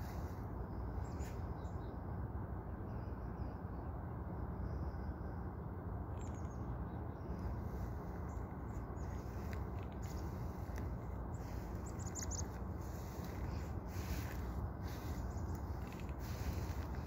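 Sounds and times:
low outdoor rumble: 0.0s - 17.0s
faint high bird chirps: 6.1s - 7.6s, 11.3s - 17.0s.

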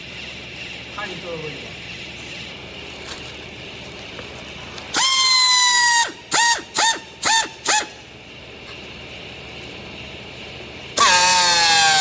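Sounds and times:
pneumatic tool air motor whining: 4.9s - 8.1s, 10.9s - 12.0s.

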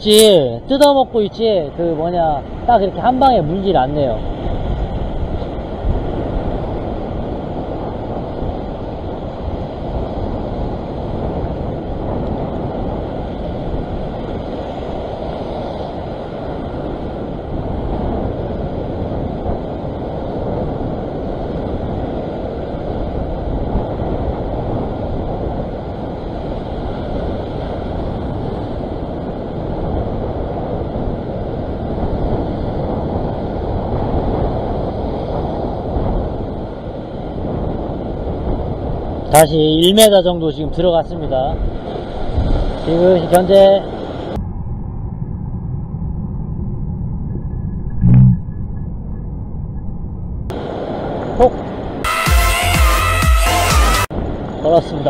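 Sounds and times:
ocean swell breaking on rocks: 0.0s - 44.5s, 50.5s - 52.1s
wind buffeting microphone: 0.0s - 52.1s, 54.0s - 55.0s.

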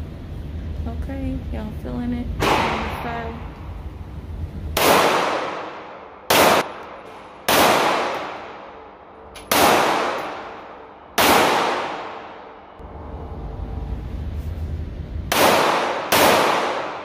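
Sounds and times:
gunshots echoing: 2.4s - 3.5s, 4.7s - 12.8s, 15.3s - 17.0s.

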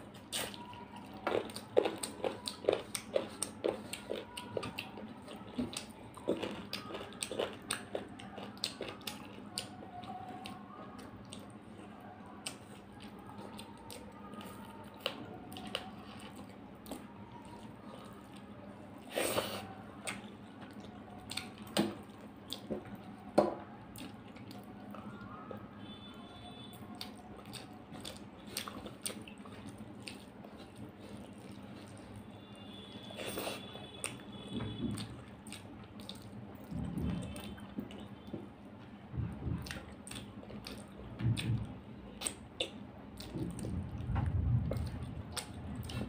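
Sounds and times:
wet chewing and mouth smacks: 0.1s - 11.6s, 19.0s - 23.2s, 26.6s - 38.5s, 39.5s - 46.0s.

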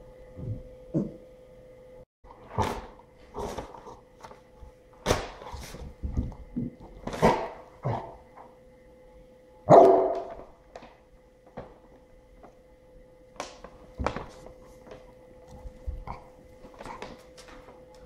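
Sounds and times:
dog barking: 9.7s - 10.4s.

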